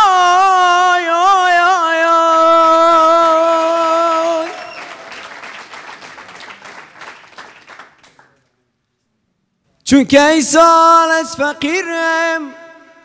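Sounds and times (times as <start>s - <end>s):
man singing a long note: 0.0s - 4.7s, 9.9s - 13.0s
audience applause: 3.3s - 8.5s.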